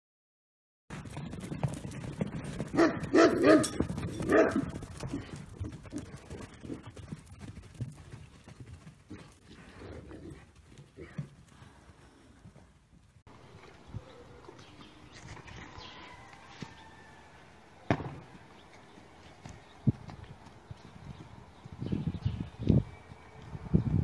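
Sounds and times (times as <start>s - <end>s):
hooves thudding on sand: 0.9s - 24.0s
dog barking: 2.8s - 4.7s.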